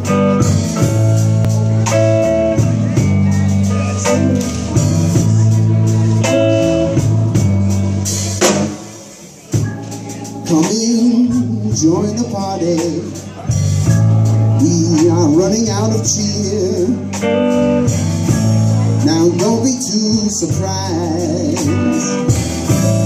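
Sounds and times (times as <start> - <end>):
live band playing: 0.0 - 23.0
drum hit: 8.4 - 8.9.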